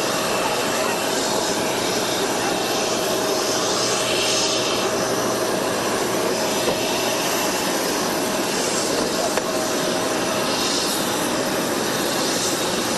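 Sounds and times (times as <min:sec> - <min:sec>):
jet engine rushing: 0:00.0 - 0:12.9.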